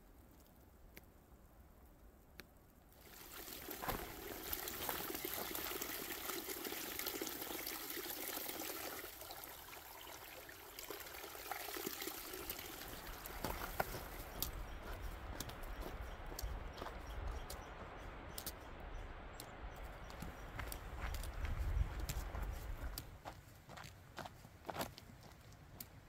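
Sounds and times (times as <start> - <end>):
water trickling into a bottle: 2.9 - 14.6.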